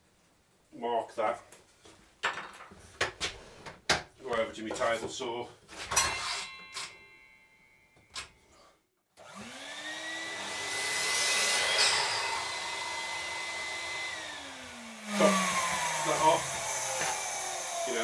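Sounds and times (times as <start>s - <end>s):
saw cutting wood: 9.2s - 18.0s
table saw running: 9.2s - 18.0s.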